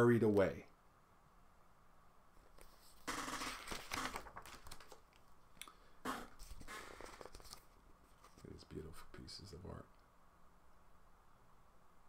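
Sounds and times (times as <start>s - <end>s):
book pages rustling: 2.4s - 5.3s, 6.4s - 8.6s.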